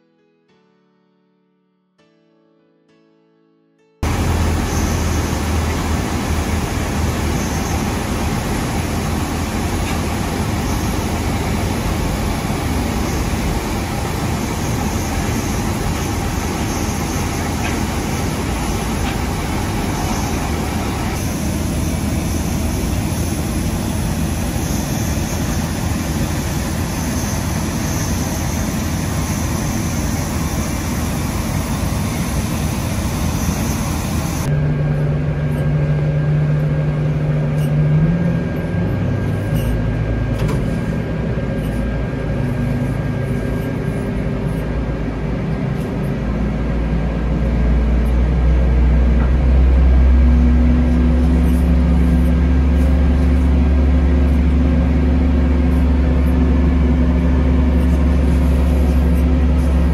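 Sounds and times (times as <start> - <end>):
tug diesel engine humming: 4.0 - 40.4
aircraft ramp roar: 4.0 - 59.9.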